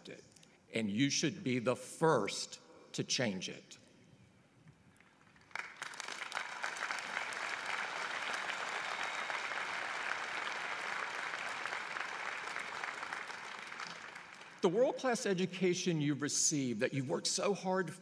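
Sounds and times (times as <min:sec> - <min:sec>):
large crowd applauding: 0:05.2 - 0:14.6.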